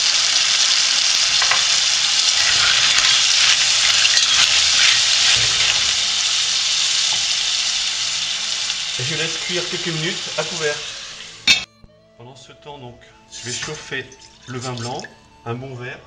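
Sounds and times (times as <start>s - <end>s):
clams sizzling in oil: 0.0s - 11.7s
wooden spoon stirring: 1.2s - 6.4s.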